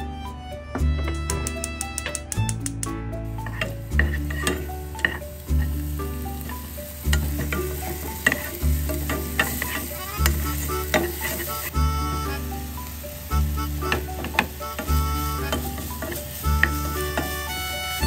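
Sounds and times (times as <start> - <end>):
onion and garlic sizzling in oil: 3.1 - 18.0
wooden spatula scraping pan: 3.3 - 12.6, 13.4 - 18.0.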